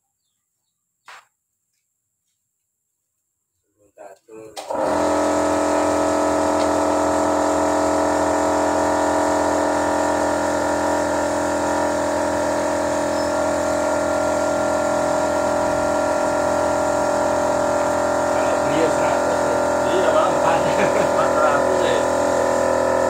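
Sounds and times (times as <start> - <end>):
machine motor humming: 4.6 - 23.0.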